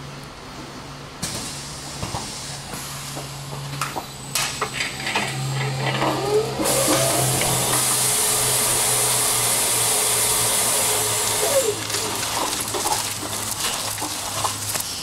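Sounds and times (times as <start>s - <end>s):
machinery humming and hissing: 0.0s - 15.0s
machine whine: 4.2s - 13.0s.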